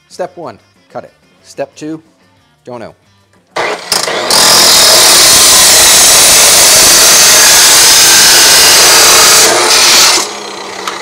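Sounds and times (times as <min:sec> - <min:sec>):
chop saw grinding metal: 0:03.6 - 0:11.0.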